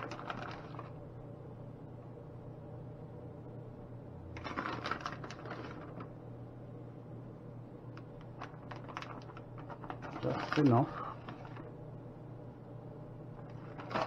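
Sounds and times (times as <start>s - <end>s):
plastic bag crinkling: 0.0s - 1.0s, 4.4s - 6.1s, 8.3s - 11.7s, 13.4s - 14.0s
steady low hum: 0.0s - 14.0s.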